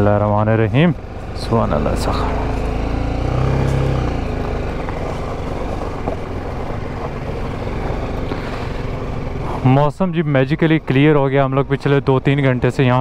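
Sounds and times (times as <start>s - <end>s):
motorcycle engine pulling away: 0.8s - 9.8s.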